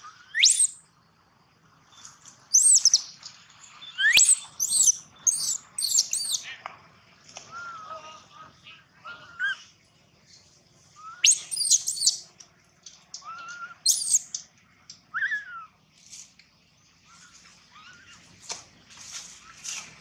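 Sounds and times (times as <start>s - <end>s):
baby monkey squealing cries: 0.4s - 0.8s, 2.5s - 3.0s, 4.0s - 6.4s, 11.0s - 12.2s, 13.2s - 14.3s.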